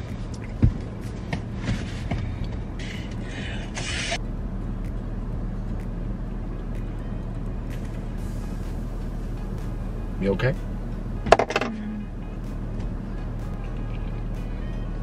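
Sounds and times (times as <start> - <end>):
car idling hum inside cabin: 0.0 - 15.0
knocks and clicks: 11.2 - 11.8.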